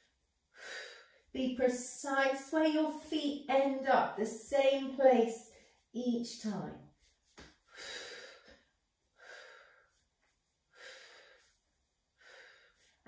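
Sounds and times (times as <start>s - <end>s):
woman breathing: 0.5s - 1.4s, 7.6s - 13.0s.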